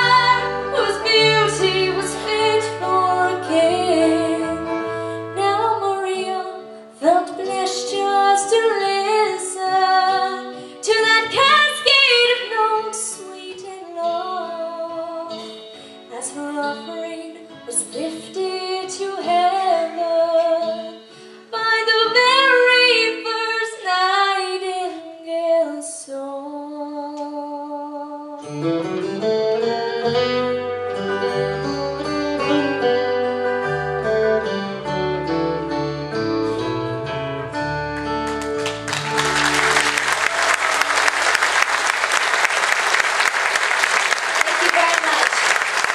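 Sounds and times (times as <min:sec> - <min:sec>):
woman singing country song: 0:00.0 - 0:28.6
acoustic guitar: 0:00.0 - 0:45.2
audience applause: 0:38.0 - 0:45.9.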